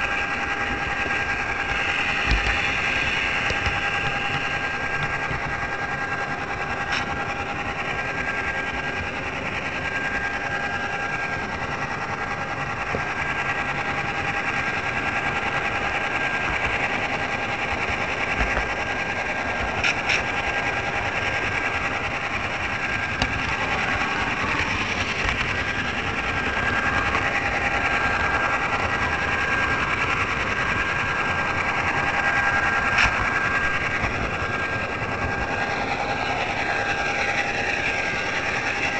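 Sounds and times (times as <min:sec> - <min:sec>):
electric motor whine: 0:00.0 - 0:38.9
wheels rattling on rail: 0:00.0 - 0:38.9
sharp clicks: 0:00.6 - 0:06.2.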